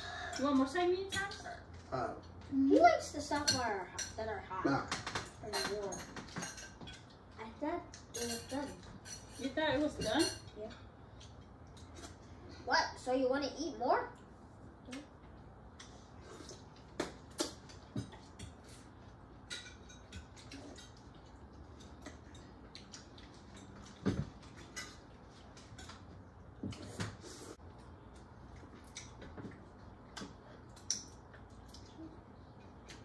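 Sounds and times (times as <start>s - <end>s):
cutlery clinking on plates: 8.0s - 10.6s, 19.4s - 22.5s.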